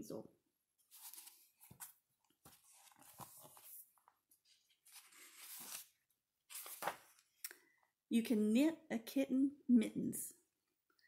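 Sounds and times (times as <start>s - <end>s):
book pages rustling: 0.8s - 7.3s.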